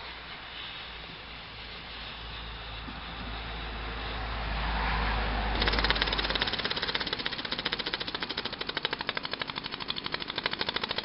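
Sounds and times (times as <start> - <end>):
steam hiss: 0.0 - 11.0
steam engine chuffing: 5.5 - 11.0.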